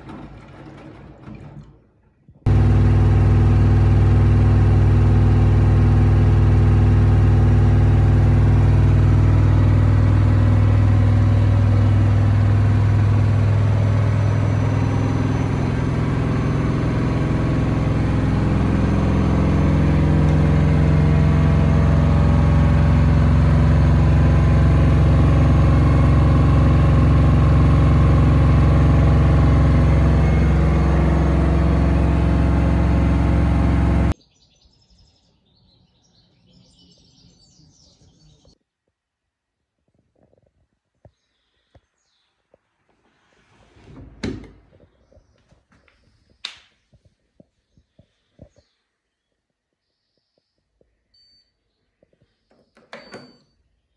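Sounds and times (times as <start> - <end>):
washing machine spin cycle hum: 2.5 - 34.2.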